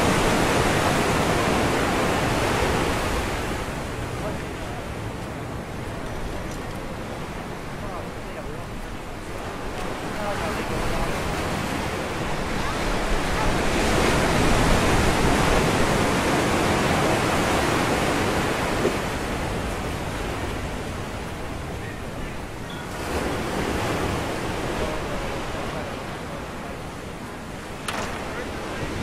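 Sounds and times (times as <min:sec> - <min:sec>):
surf washing onto rocky shore: 0:00.0 - 0:29.0.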